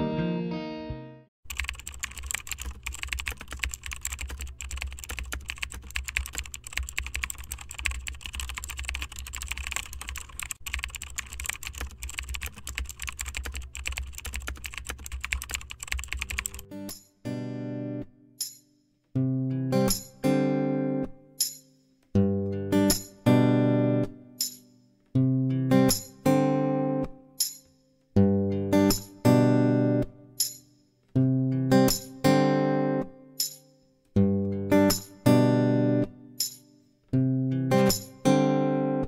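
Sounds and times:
guitar music: 0:00.0 - 0:01.3, 0:16.5 - 0:18.2, 0:19.2 - 0:21.4, 0:22.2 - 0:24.4, 0:25.1 - 0:27.4, 0:28.2 - 0:30.4, 0:31.2 - 0:33.4, 0:34.2 - 0:36.4, 0:37.2 - 0:39.0
fast keyboard typing: 0:01.4 - 0:16.7.

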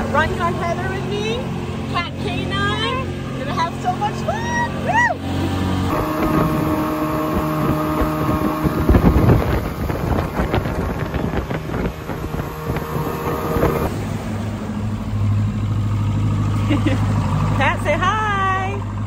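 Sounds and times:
boat engine hum: 0:00.0 - 0:19.0
water rushing past hull: 0:04.6 - 0:16.5
wind buffeting microphone: 0:05.8 - 0:15.0.

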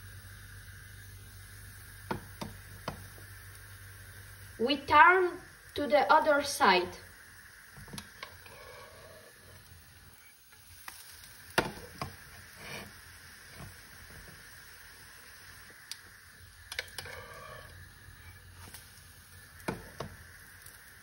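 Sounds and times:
pancake sizzling in oil: 0:00.0 - 0:21.0
spatula scraping a pan: 0:08.4 - 0:09.6, 0:12.2 - 0:14.2.

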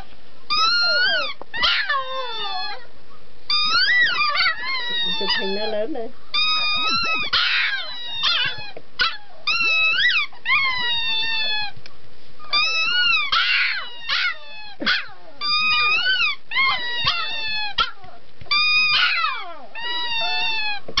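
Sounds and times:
puppy howling: 0:00.0 - 0:02.9, 0:03.5 - 0:11.8, 0:12.5 - 0:21.0.

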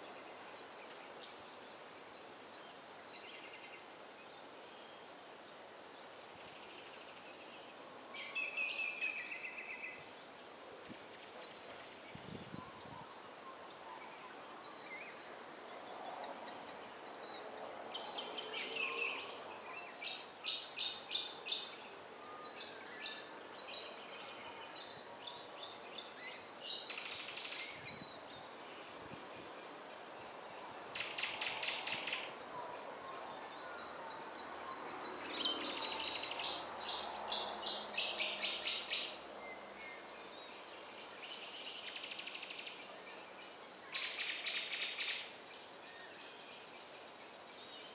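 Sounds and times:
steady background hiss: 0:00.0 - 0:47.9.

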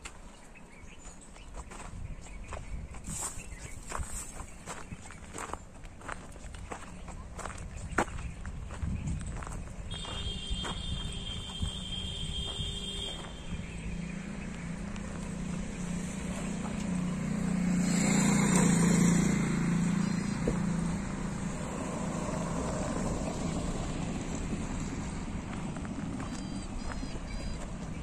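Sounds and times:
motor vehicle running: 0:00.0 - 0:28.0.

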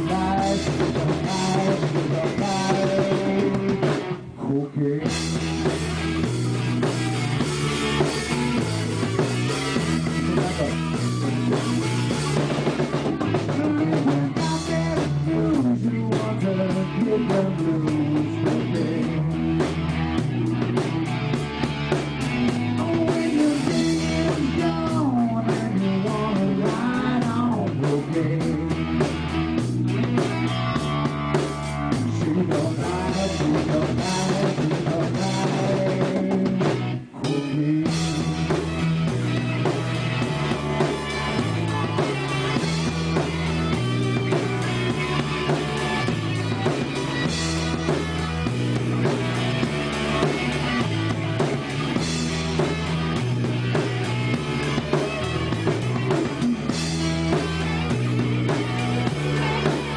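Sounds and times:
person singing: 0:00.0 - 0:05.4, 0:13.0 - 0:19.7, 0:22.6 - 0:29.2, 0:31.9 - 0:38.7
drum kit beat: 0:00.0 - 0:59.9
electric guitars: 0:00.0 - 0:59.9.

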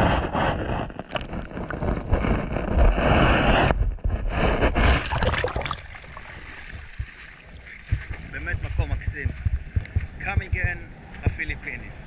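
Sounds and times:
underwater sloshing and rushing: 0:00.0 - 0:08.3
heavy low rumble: 0:07.8 - 0:11.7.

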